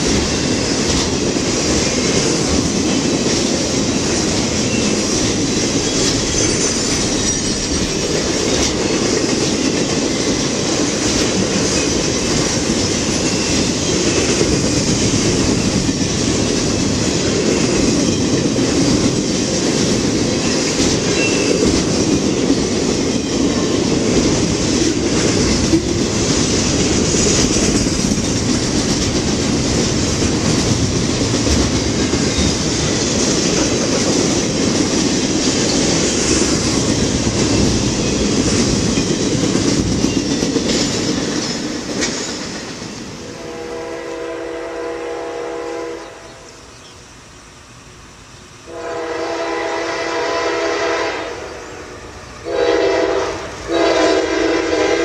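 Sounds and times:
freight train cars rolling on rails: 0:00.0 - 0:55.0
locomotive air horn blasts: 0:43.3 - 0:46.4, 0:48.7 - 0:55.0.

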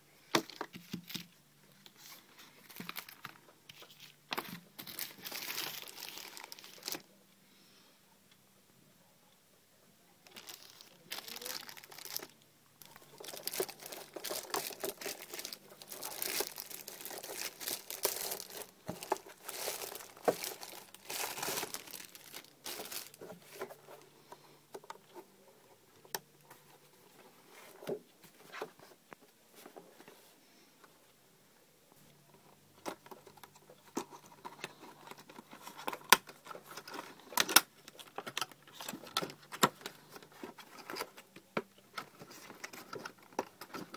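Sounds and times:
plastic wrapping crinkling: 0:00.4 - 0:07.1, 0:10.2 - 0:24.0, 0:32.8 - 0:43.9.

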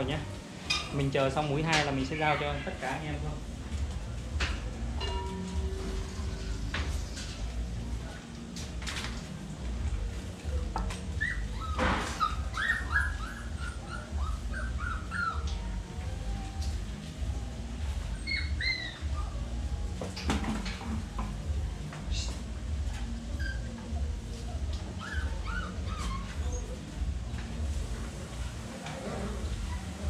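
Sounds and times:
puppy whimpering: 0:10.8 - 0:15.8, 0:18.0 - 0:19.6, 0:23.2 - 0:26.9.

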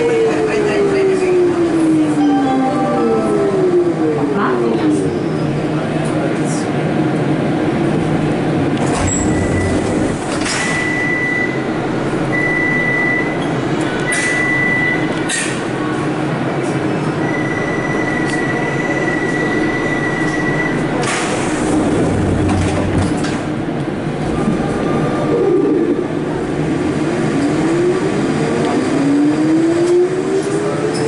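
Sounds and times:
train motors humming: 0:00.0 - 0:10.5.

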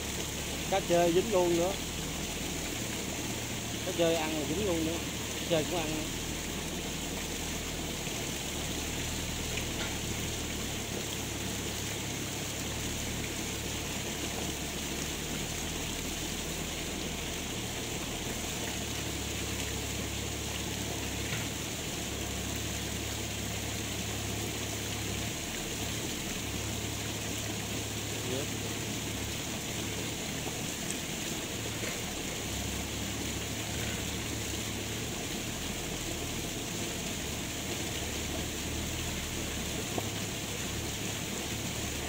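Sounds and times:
flowing water rushing: 0:00.0 - 0:42.0.

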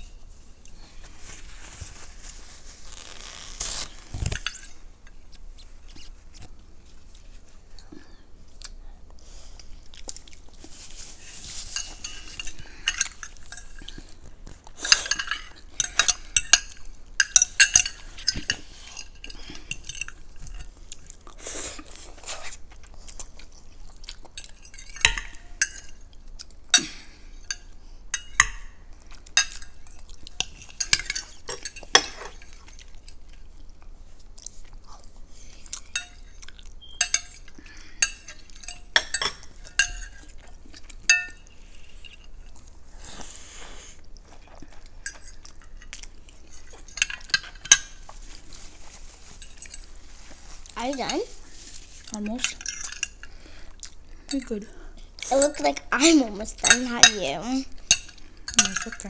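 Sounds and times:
chewing: 0:05.1 - 0:27.8, 0:28.9 - 0:55.4
cutlery clinking on dishes: 0:29.4 - 0:32.8, 0:35.8 - 0:42.3, 0:57.9 - 0:59.0.

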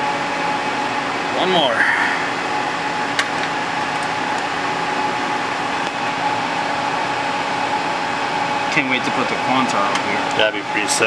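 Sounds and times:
cooling fans whirring: 0:00.0 - 0:11.0
steady whine: 0:00.0 - 0:11.0.

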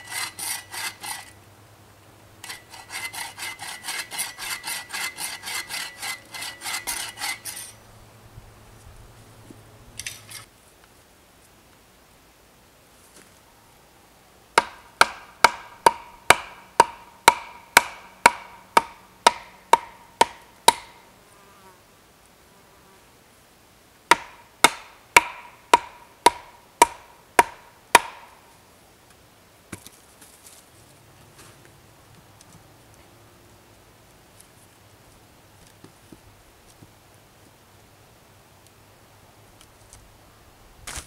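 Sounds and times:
wooden post being hammered: 0:14.6 - 0:21.0, 0:24.1 - 0:28.4.

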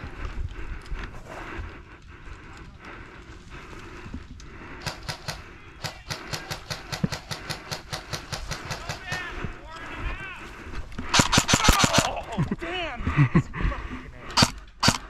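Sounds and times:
airsoft rifle firing: 0:04.8 - 0:09.4, 0:11.1 - 0:12.2, 0:14.4 - 0:15.0.

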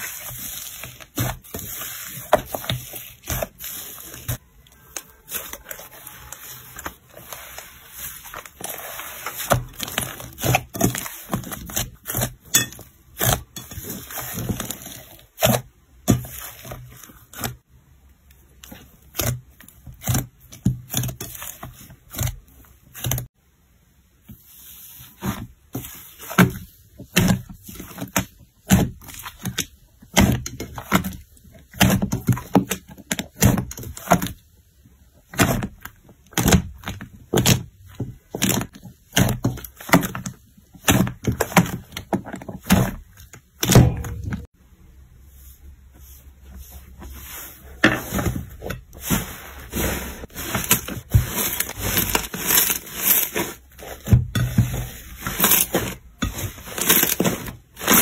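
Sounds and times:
slime squelching: 0:00.0 - 0:17.6, 0:45.4 - 0:58.0.

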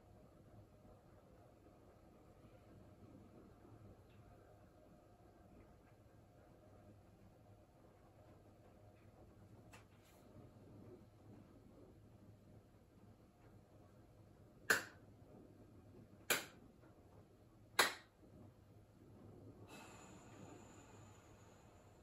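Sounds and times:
faint steady hiss: 0:00.0 - 0:22.0
sharp hand claps: 0:14.7 - 0:15.0, 0:16.3 - 0:16.6, 0:17.8 - 0:18.2.

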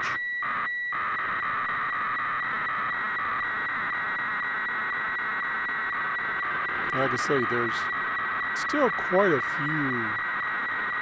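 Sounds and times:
radio band noise: 0:00.0 - 0:11.0
scratchy warbling radio tone: 0:05.9 - 0:11.0.

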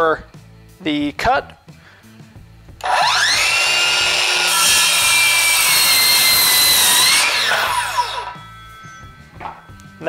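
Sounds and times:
circular saw cutting wood: 0:02.8 - 0:08.5.

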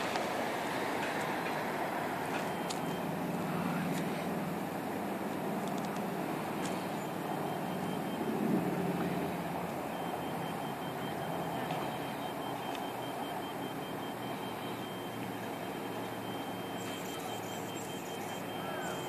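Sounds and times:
diesel engine running: 0:00.0 - 0:19.0
high-pitched alarm tone: 0:01.4 - 0:03.8, 0:06.8 - 0:19.0.

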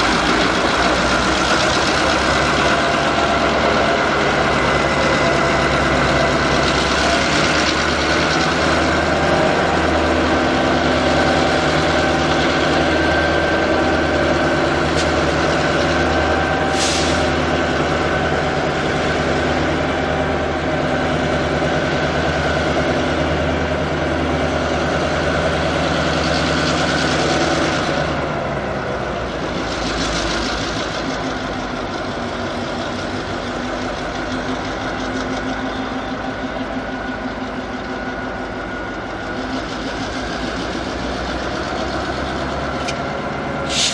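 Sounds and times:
diesel locomotive engine running: 0:00.0 - 0:43.9
short hiss: 0:43.7 - 0:43.9.

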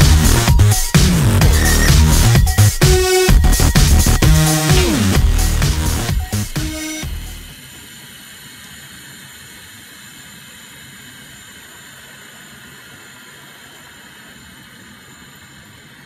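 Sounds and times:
toy car drivetrain whirring: 0:07.5 - 0:16.0.

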